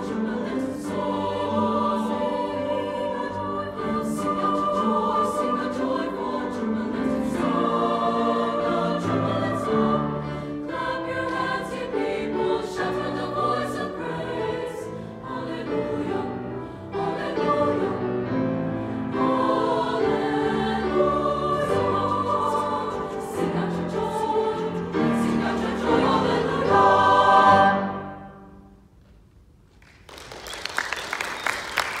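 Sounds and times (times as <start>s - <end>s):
choir singing in harmony: 0.0s - 28.8s
applause: 29.8s - 32.0s.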